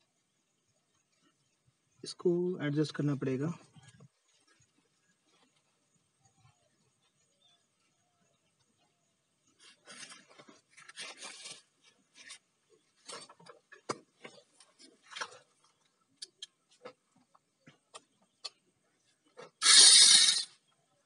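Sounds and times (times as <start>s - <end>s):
hands rustling and rubbing: 9.6s - 13.3s.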